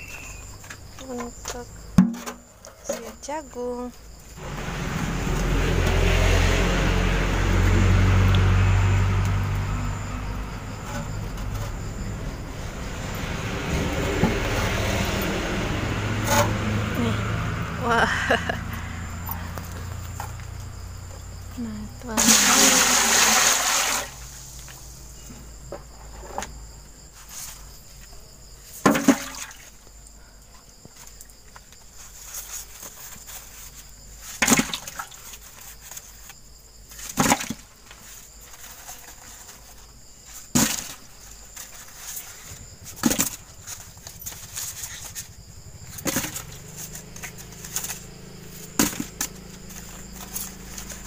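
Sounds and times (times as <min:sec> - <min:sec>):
wood fire rumbling: 0:04.4 - 0:17.8.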